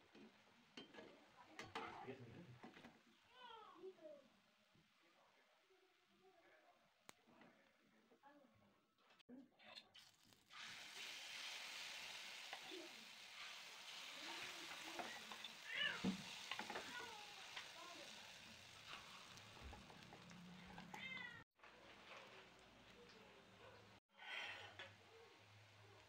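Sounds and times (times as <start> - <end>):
batter sizzling in hot oil: 10.0 - 23.6.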